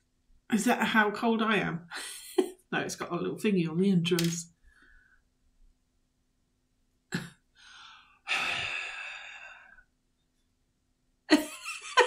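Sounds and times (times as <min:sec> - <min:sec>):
woman breathing out: 0:07.6 - 0:09.9.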